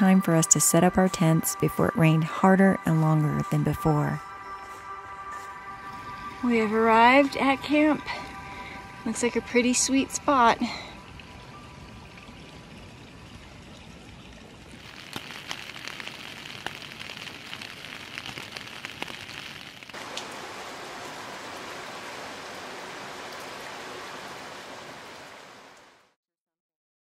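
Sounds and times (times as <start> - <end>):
rain falling: 0.0 - 26.2
raindrops tapping close by: 13.7 - 26.0.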